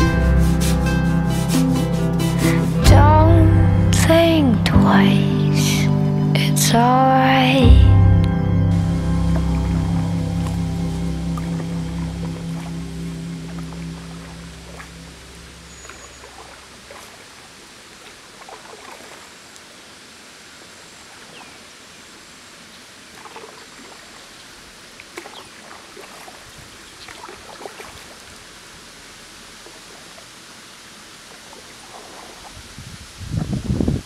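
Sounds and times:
outdoor hiss: 8.7 - 25.2, 28.1 - 34.0
paddle splashes and drips: 9.0 - 33.2.

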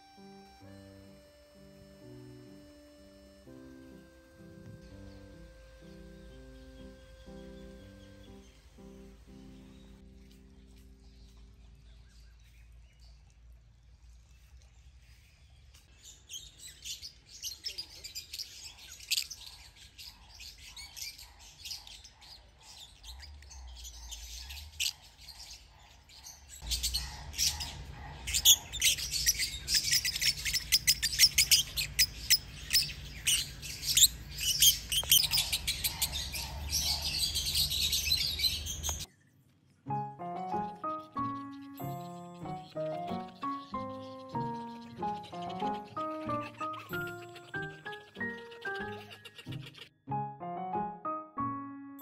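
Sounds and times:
birds chirping: 0.0 - 52.0
flock of lovebirds chattering: 16.4 - 39.1, 40.5 - 49.9.

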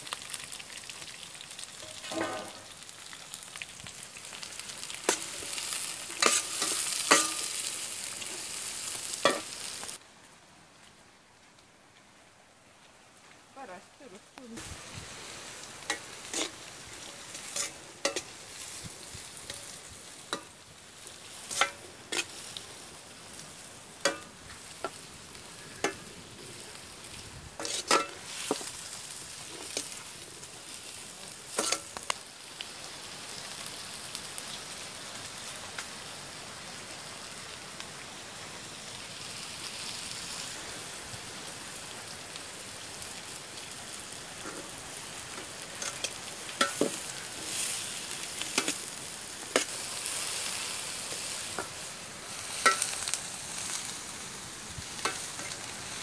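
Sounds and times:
onions sizzling in oil: 0.0 - 10.0, 13.6 - 56.0
metal spoon scraping a pan: 1.8 - 2.7, 5.0 - 8.5, 9.2 - 9.6, 15.9 - 18.8, 19.4 - 20.6, 21.4 - 22.5, 27.6 - 28.7, 29.4 - 30.0, 31.5 - 32.0, 45.3 - 47.8, 48.5 - 48.8, 52.5 - 53.1.

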